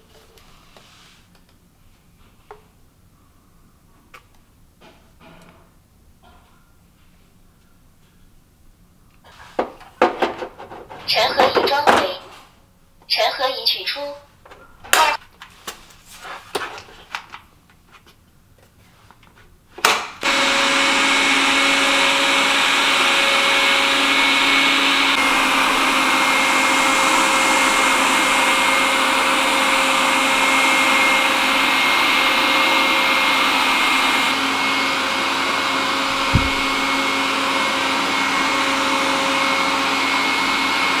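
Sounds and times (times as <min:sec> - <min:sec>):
robot vacuum running: 0:20.2 - 0:29.8, 0:33.6 - 0:37.5
low thump: 0:36.1 - 0:36.9.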